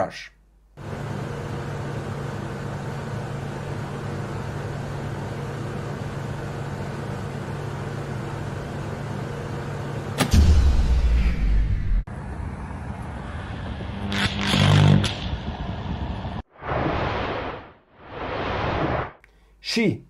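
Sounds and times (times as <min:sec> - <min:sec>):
low electrical hum: 0:00.0 - 0:10.6.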